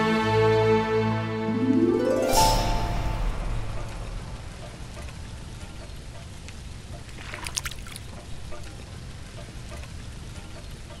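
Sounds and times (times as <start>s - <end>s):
low rumble: 2.3s - 6.8s
rain pattering on a puddle: 5.0s - 11.0s.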